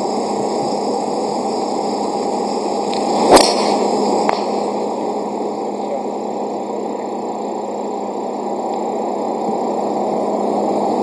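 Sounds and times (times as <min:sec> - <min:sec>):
steady outdoor hiss: 0:00.0 - 0:11.0
golf club striking ball: 0:03.3 - 0:04.6.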